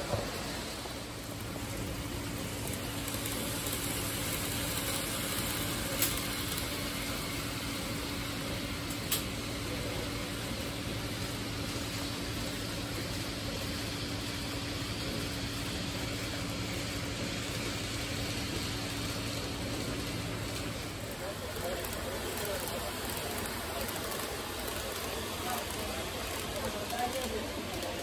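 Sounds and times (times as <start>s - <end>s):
model train humming: 0.0s - 28.0s.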